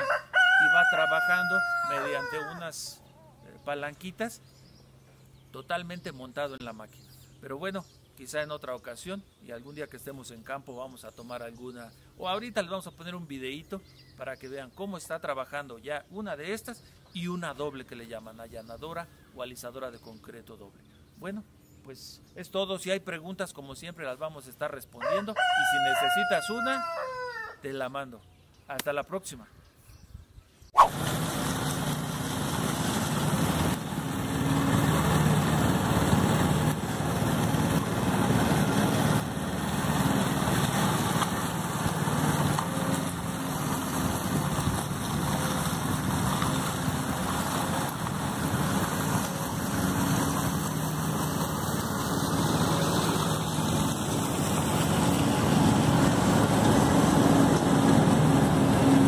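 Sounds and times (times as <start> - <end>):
power trowel engine running: 30.9 - 59.0.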